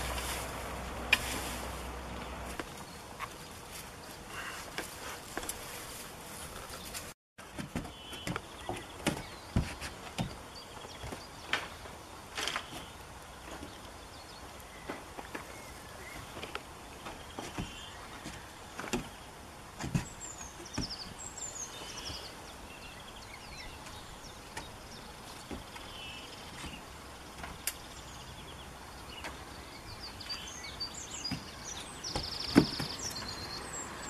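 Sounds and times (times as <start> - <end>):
birds chirping and trilling: 7.8 - 34.0.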